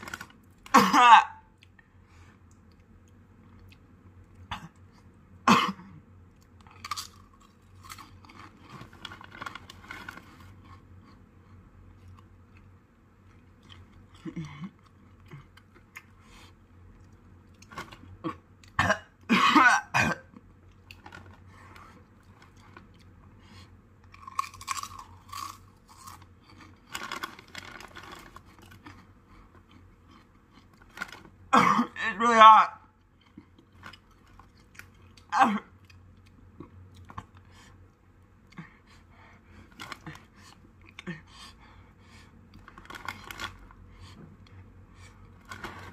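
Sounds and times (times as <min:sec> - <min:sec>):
person crunching chips: 0:00.0 - 0:00.8, 0:06.4 - 0:10.8, 0:24.0 - 0:31.4, 0:42.5 - 0:43.8
person coughing: 0:00.7 - 0:01.5, 0:04.5 - 0:04.8, 0:05.4 - 0:06.0, 0:18.2 - 0:20.3, 0:31.5 - 0:32.2, 0:35.3 - 0:35.7.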